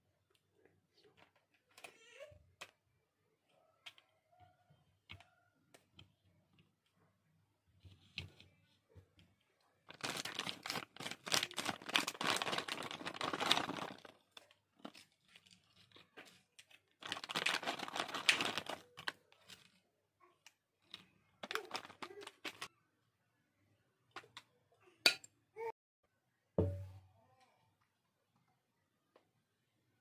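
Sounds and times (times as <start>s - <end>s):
chip packet crinkling: 9.9s - 19.7s, 21.4s - 22.7s.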